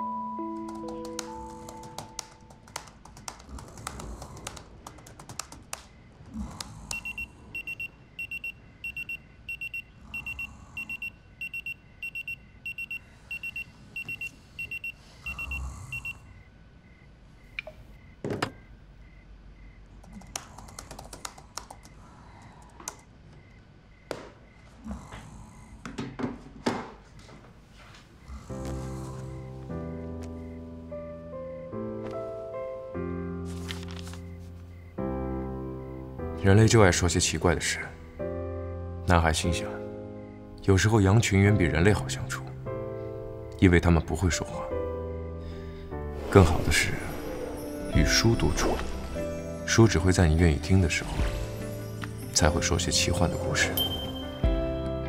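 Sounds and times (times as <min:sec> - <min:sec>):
laptop keyboard typing: 0:00.5 - 0:05.9, 0:20.0 - 0:23.1
phone alarm beeping: 0:06.9 - 0:16.3.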